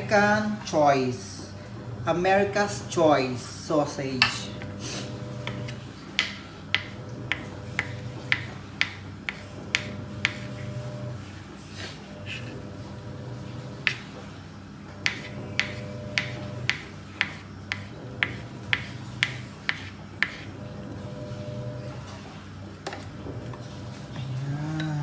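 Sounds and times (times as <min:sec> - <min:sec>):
knife chopping on cutting board: 0:05.4 - 0:10.6, 0:13.8 - 0:14.1, 0:15.0 - 0:20.5.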